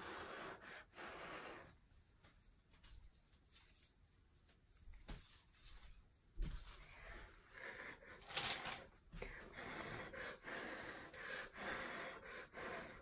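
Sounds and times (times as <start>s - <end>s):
person blowing breathy puffs: 0.0s - 1.8s, 9.3s - 13.0s.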